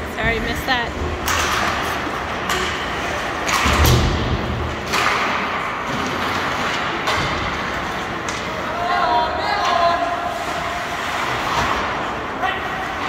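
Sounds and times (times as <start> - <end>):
hockey sticks clattering: 0.2 - 13.0
skates scraping ice: 4.8 - 13.0.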